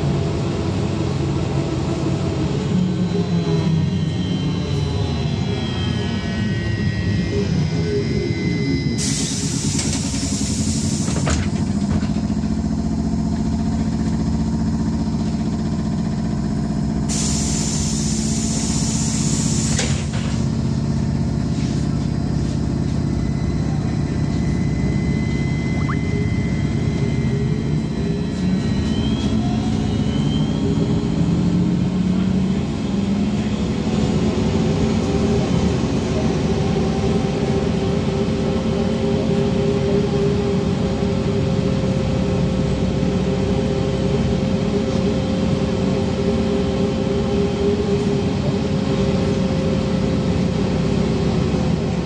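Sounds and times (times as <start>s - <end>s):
trolleybus ride hum: 0.0s - 8.3s, 8.9s - 52.0s
faint rising whine: 23.2s - 30.6s.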